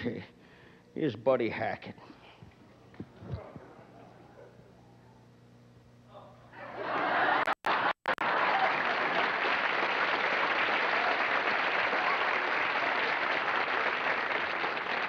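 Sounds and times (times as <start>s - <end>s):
audience applauding: 6.8s - 15.0s.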